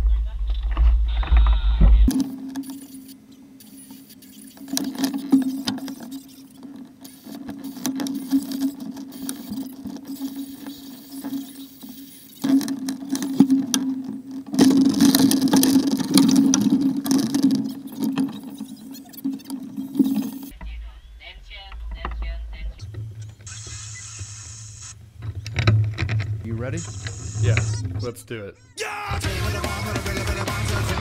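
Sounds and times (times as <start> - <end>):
hiss: 23.5 - 24.9.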